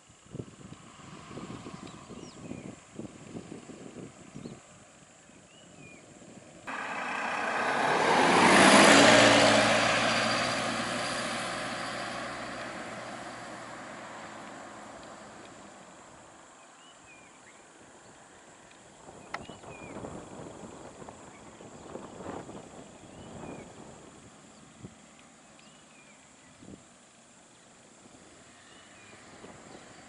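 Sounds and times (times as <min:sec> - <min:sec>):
van driving past: 0:06.7 - 0:16.3.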